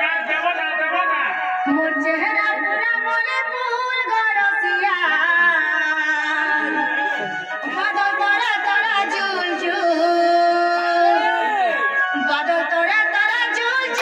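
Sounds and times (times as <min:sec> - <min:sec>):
person singing: 0:05.3 - 0:14.0
folk instrumental accompaniment: 0:06.4 - 0:14.0.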